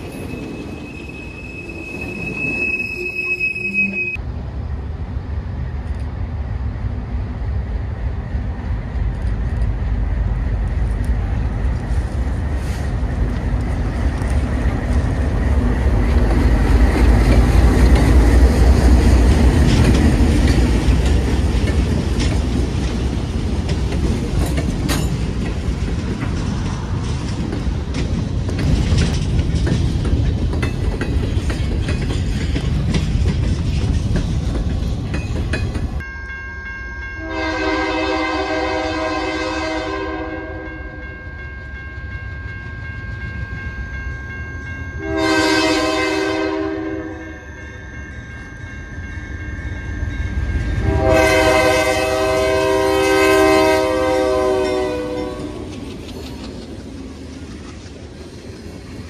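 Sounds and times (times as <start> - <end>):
locomotive engine rumble: 3.8 - 36.0
wheels clacking over rail joints: 9.0 - 36.0, 54.8 - 59.0.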